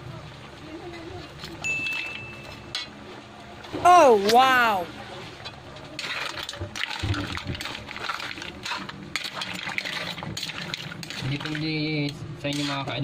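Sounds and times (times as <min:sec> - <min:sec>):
seafood crackling in a wok: 0:05.4 - 0:13.0.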